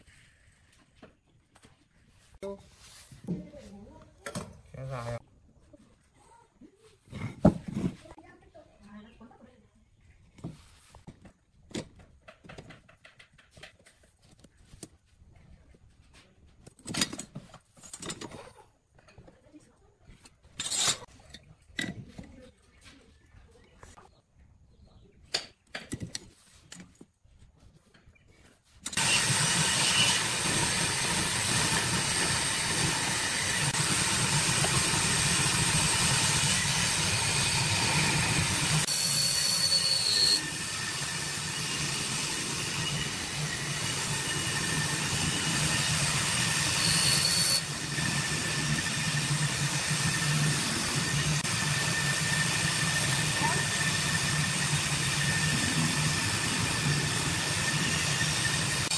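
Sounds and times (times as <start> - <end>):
chisel boring into wood: 28.9 - 58.9
mortiser motor humming: 29.0 - 58.9.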